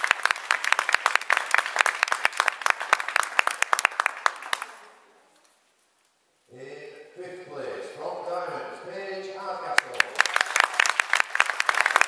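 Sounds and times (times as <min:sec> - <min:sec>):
audience applauding: 0:00.0 - 0:04.8, 0:09.7 - 0:12.0.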